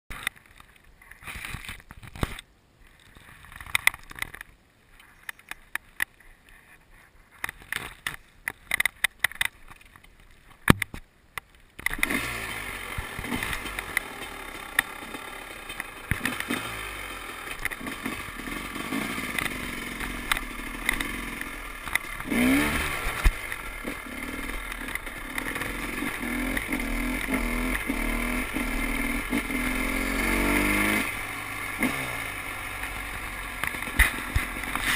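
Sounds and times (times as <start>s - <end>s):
dirt bike engine revving: 11.9s - 34.9s.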